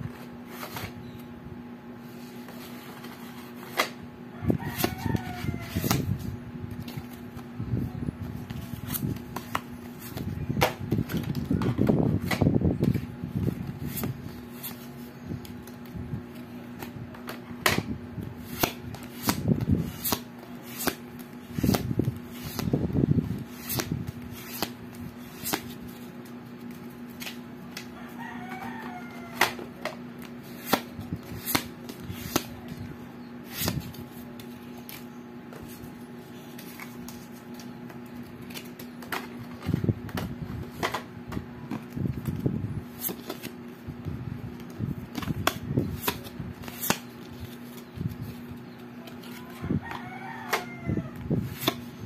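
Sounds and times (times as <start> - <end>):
steady low hum: 0.0 - 52.0
playing cards clicking and tapping: 16.7 - 32.8, 44.6 - 50.7, 51.5 - 51.9.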